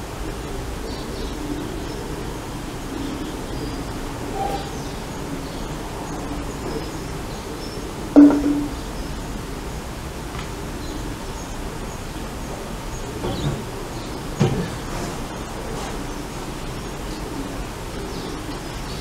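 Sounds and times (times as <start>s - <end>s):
outdoor background noise: 0.0s - 19.0s
bottle knocking on metal frame: 8.2s - 8.8s.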